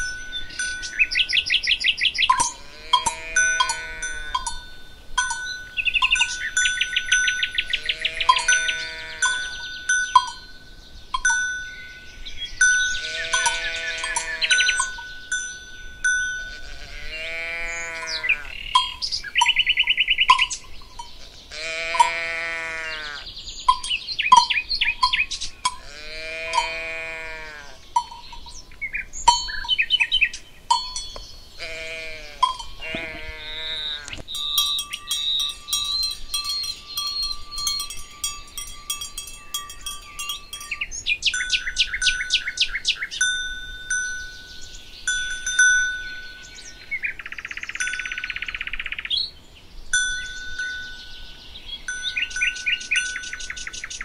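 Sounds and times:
clanking bells: 0.0s - 1.6s, 2.3s - 16.8s, 18.8s - 19.7s, 23.7s - 25.9s, 28.0s - 30.0s, 30.7s - 46.7s, 47.8s - 48.5s, 50.0s - 53.7s
birds chirping: 0.0s - 54.0s
livestock bleating: 2.4s - 4.5s, 7.7s - 9.6s, 12.9s - 14.8s, 16.4s - 18.7s, 21.2s - 23.3s, 25.8s - 27.8s, 31.6s - 34.2s
bell tones ringing: 32.4s - 42.4s.

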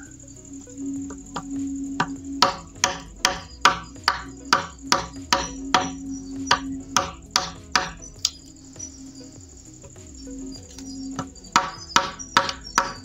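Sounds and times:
hammer striking chisel into bamboo: 1.4s - 8.4s, 11.2s - 13.0s.

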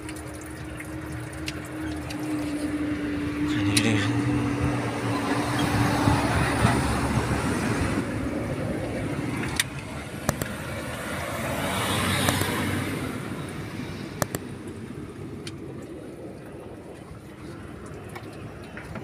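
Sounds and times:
sharp clicks: 9.4s - 10.6s, 12.2s - 12.6s, 14.2s - 14.5s.

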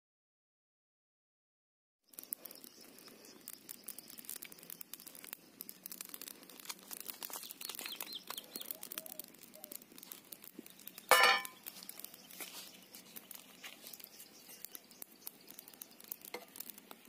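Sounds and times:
wood fire crackling: 2.0s - 17.0s
bird chirping: 7.1s - 9.8s, 10.5s - 16.4s
soap clanking in metal pan: 11.1s - 11.6s.

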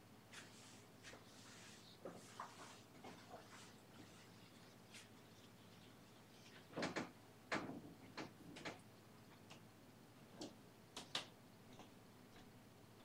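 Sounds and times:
paint brush tapping and scraping canvas: 0.3s - 7.0s.

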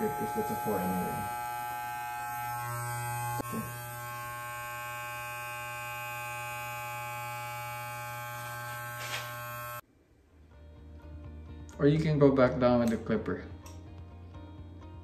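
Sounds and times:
electric hair clipper buzzing: 0.0s - 9.8s.

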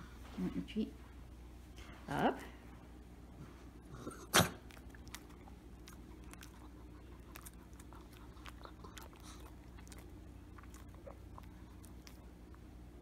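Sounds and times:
dog crunching a hard treat: 4.1s - 12.3s.

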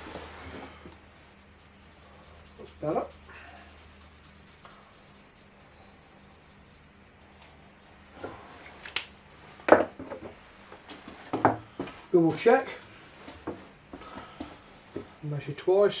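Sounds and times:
marker pen scratching on steel: 1.0s - 8.0s
tools knocking on wooden bench: 9.7s - 10.4s, 11.3s - 11.6s.

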